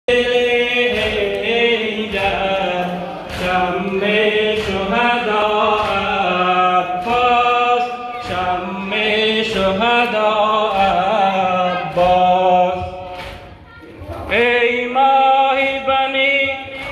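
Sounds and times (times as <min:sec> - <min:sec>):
man chanting a lament: 0:00.1 - 0:13.1, 0:14.2 - 0:16.9
sharp slaps: 0:00.9 - 0:08.5, 0:11.9 - 0:13.6.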